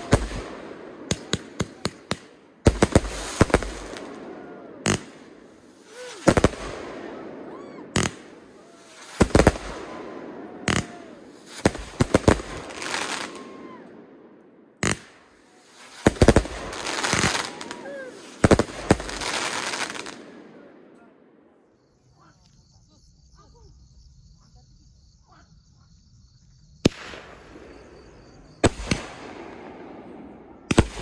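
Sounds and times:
fireworks banging and crackling: 0.0 - 13.8, 14.8 - 20.4, 26.8 - 31.0.

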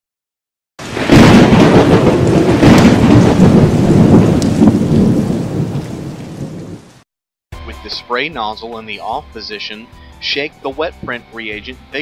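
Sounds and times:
loud steady rain: 0.8 - 7.0
thunder rumbling: 0.8 - 7.0.

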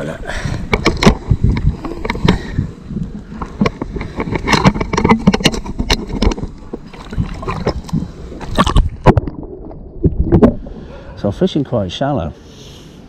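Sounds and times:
water splashing and sloshing: 0.8 - 11.2.

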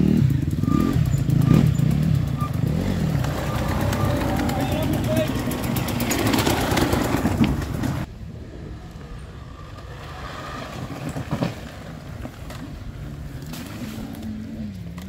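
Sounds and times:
dirt bike engine idling: 0.0 - 8.1
dirt bike engines running: 0.0 - 15.0.

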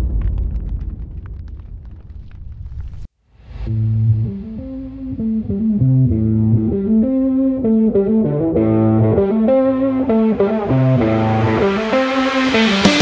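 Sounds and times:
guitar instrumental with bass: 3.6 - 13.0.

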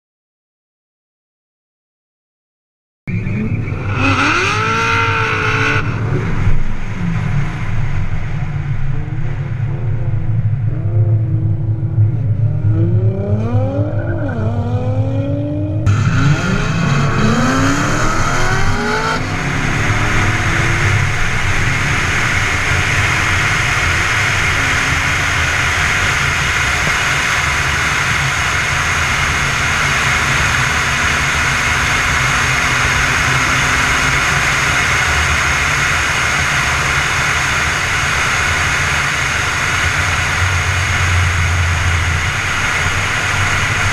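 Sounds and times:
car engine accelerating hard: 3.1 - 43.9
wind and road noise: 3.1 - 43.9.

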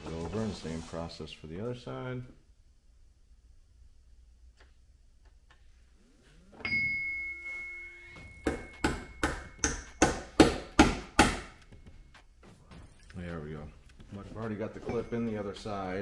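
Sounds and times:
hammer striking metal: 8.2 - 11.6.

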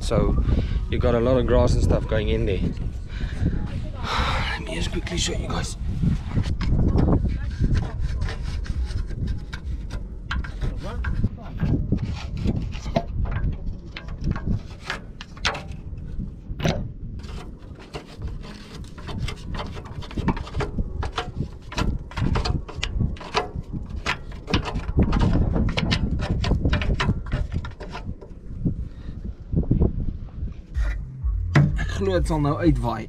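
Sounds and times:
stick scraping metal underbody: 4.6 - 29.3.

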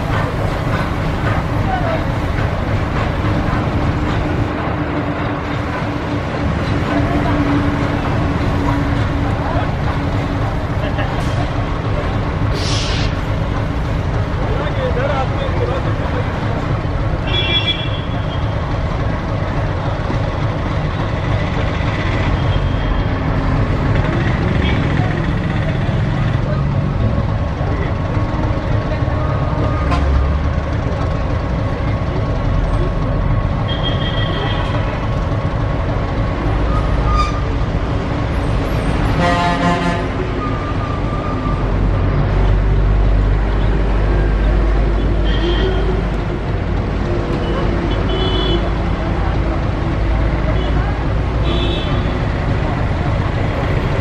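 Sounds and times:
steam locomotive rumble: 0.0 - 54.0
steam hissing: 12.4 - 14.1.

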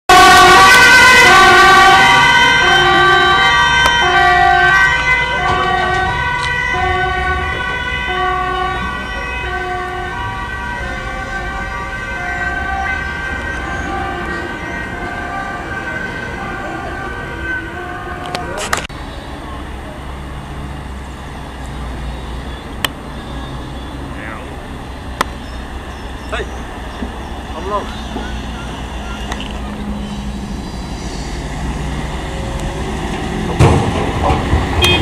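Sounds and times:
two-tone police siren: 0.1 - 18.9, 27.5 - 31.0.

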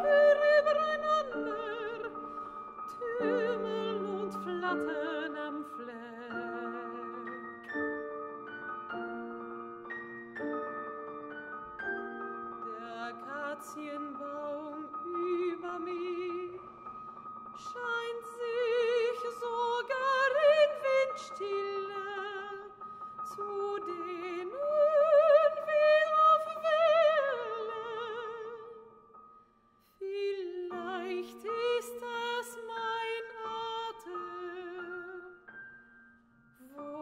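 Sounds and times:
woman singing classical song: 0.0 - 16.9, 17.5 - 29.1, 29.8 - 35.8, 36.5 - 37.0
piano chords: 0.0 - 29.4.

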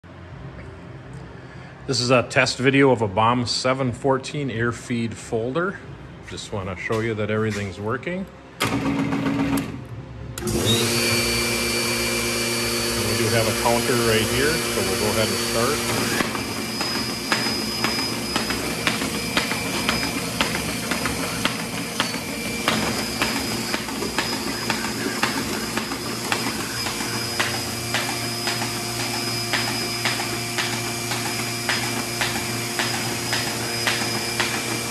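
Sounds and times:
paper folder motor hum: 10.4 - 34.9
sharp machine clicks: 14.8 - 34.9.

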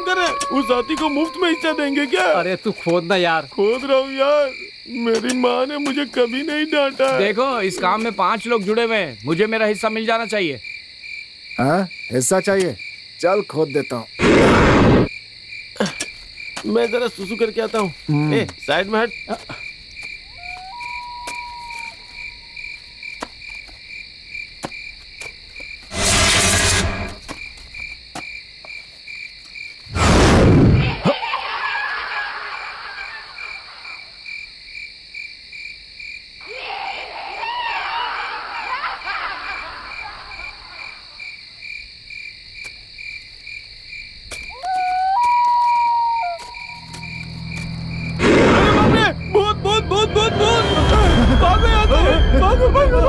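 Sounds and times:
short hooting call: 0.0 - 2.4, 20.3 - 22.6, 44.5 - 53.0
crickets chirping: 0.0 - 53.0
eerie rustling textures: 45.6 - 53.0
whooshing sound effects: 47.6 - 52.4.

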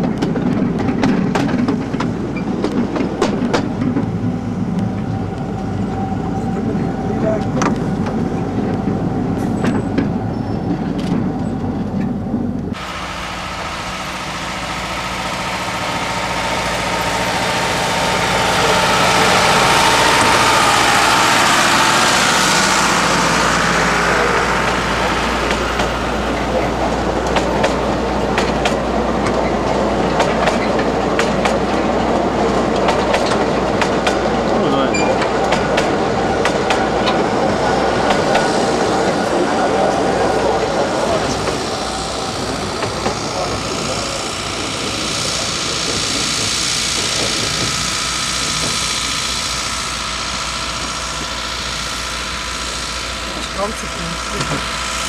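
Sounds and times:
train wheels clicking over rail joints: 0.0 - 12.8, 24.0 - 55.0
passing train: 0.0 - 55.0.

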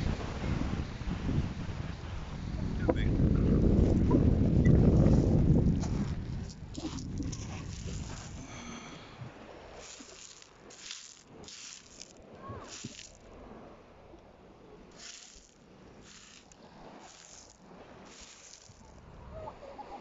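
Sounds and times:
pebbles clattering and scraping: 6.4 - 9.0, 9.7 - 13.3, 14.9 - 19.0.

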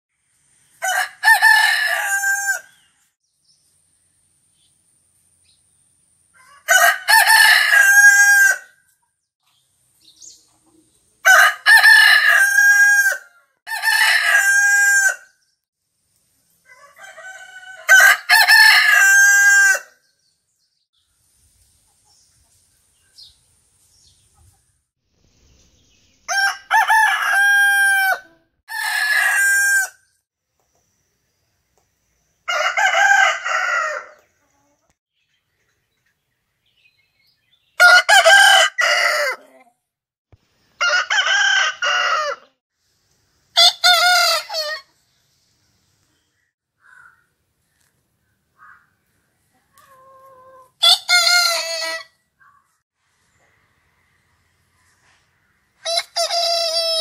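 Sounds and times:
roosters crowing: 0.8 - 2.9, 6.4 - 8.8, 11.2 - 15.4, 16.6 - 20.0, 26.3 - 30.1, 32.4 - 34.3, 37.8 - 39.6, 40.8 - 42.6, 43.6 - 44.9, 49.8 - 52.2, 55.8 - 57.0.

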